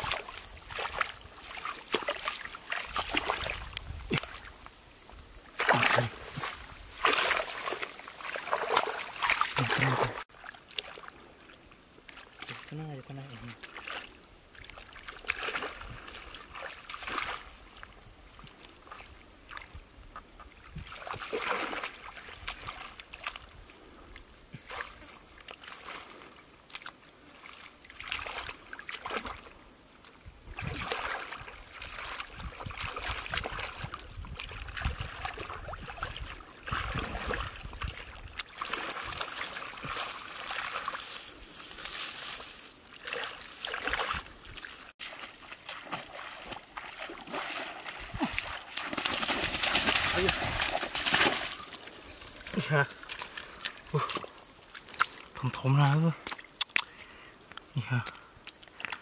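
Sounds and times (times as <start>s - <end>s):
hands sloshing in muddy water: 0.0s - 4.6s, 5.5s - 29.6s, 30.4s - 59.0s.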